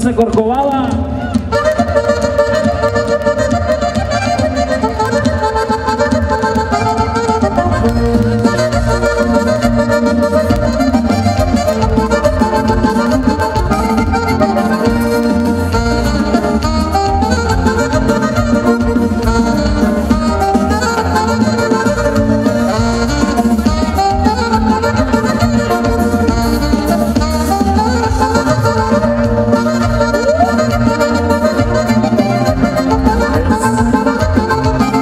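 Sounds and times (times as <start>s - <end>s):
live band music with accordion: 0.0s - 35.0s.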